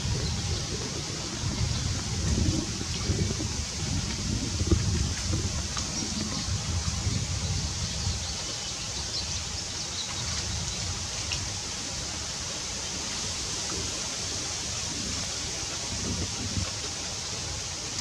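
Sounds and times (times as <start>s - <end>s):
wind rumbling on microphone: 0.0s - 18.0s
outdoor hiss: 7.8s - 18.0s.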